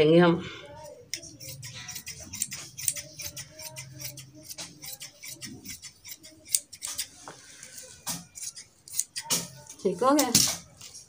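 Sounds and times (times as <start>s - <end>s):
scissors cutting cloth: 0.8s - 11.0s.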